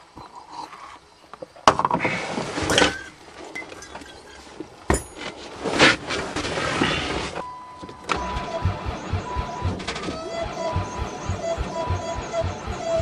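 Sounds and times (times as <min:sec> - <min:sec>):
starter motor cranking engine: 0:08.1 - 0:13.0.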